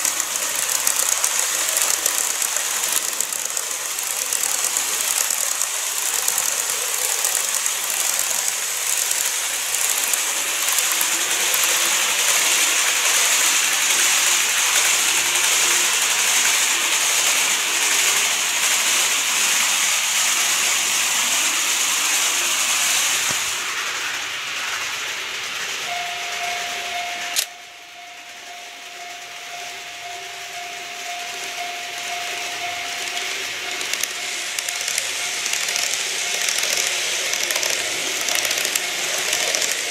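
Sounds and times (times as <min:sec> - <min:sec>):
model train running on track: 0:00.0 - 0:39.9
level crossing warning beeps: 0:25.9 - 0:36.4.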